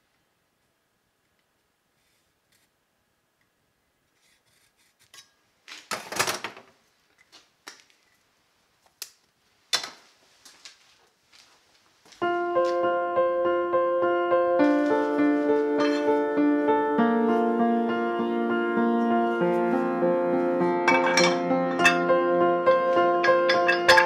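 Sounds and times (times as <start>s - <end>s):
piano music: 12.2s - 24.0s.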